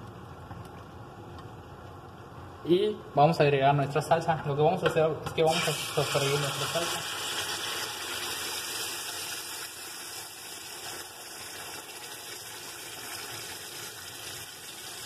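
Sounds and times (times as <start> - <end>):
salsa sizzling in hot oil: 5.4 - 15.0.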